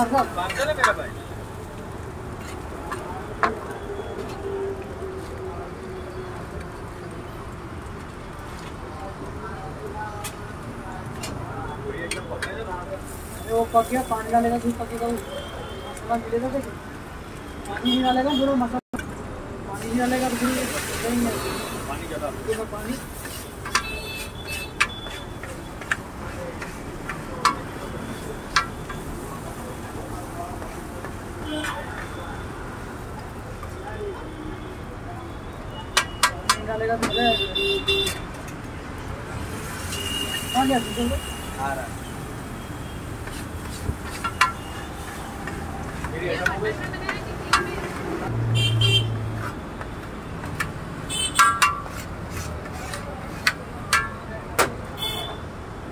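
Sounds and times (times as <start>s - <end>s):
steady background noise: 0.0s - 55.9s
metal spatula clacking on griddle: 23.2s - 27.7s, 28.5s - 29.3s, 36.0s - 37.1s, 43.2s - 48.0s, 50.5s - 54.2s.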